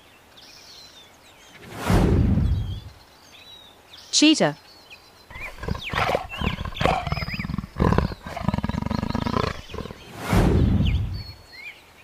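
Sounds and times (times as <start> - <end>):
small birds chirping: 2.5 - 11.9
big cat growling: 5.3 - 10.6.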